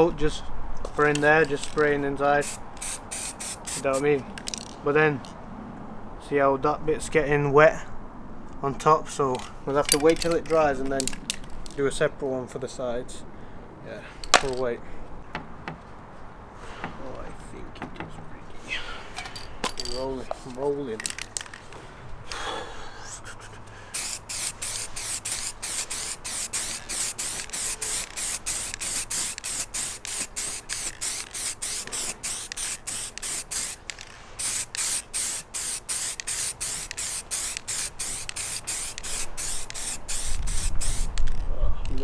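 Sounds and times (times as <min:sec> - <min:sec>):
spray paint can hissing: 0:02.4 - 0:04.7, 0:23.9 - 0:41.3.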